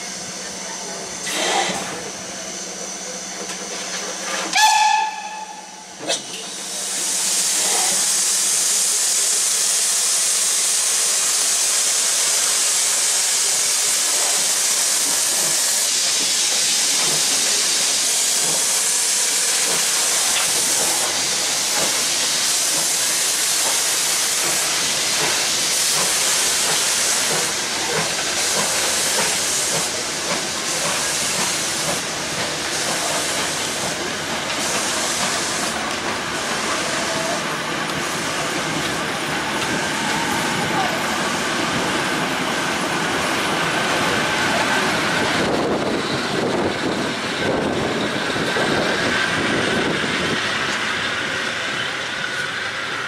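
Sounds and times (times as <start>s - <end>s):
loud hiss of escaping steam: 0.0s - 53.0s
steam locomotive whistle: 4.4s - 6.0s.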